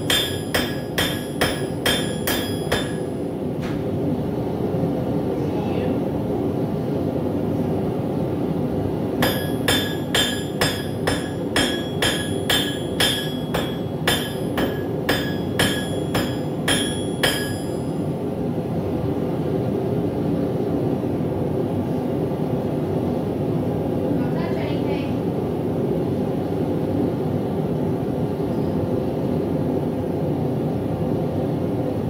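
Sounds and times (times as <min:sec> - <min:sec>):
hammer ringing on anvil: 0:00.0 - 0:03.2, 0:09.2 - 0:18.0.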